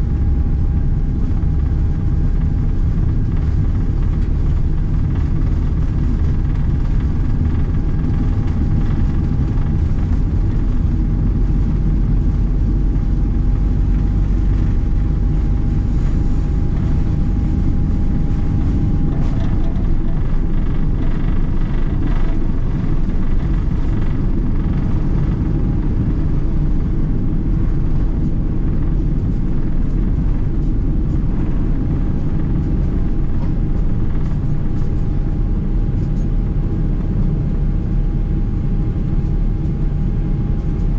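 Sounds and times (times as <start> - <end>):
deep jet engine rumble: 0.0 - 40.9
steady engine whine: 0.0 - 40.9.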